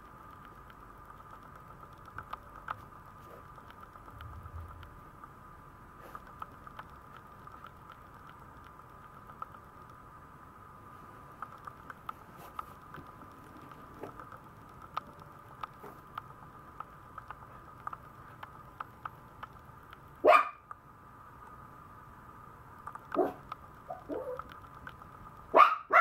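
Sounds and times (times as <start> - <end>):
small clicks: 0.0 - 5.4, 6.0 - 10.0, 11.3 - 20.8, 22.7 - 25.6
faint steady hum: 0.0 - 26.0
puppy yipping: 20.3 - 20.6, 23.2 - 24.4.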